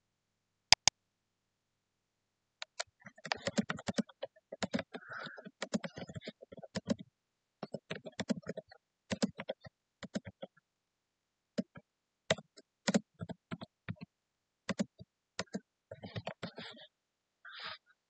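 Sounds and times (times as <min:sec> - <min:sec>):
computer keyboard typing: 0:02.6 - 0:07.0, 0:07.6 - 0:10.6, 0:11.6 - 0:14.1, 0:14.7 - 0:16.8.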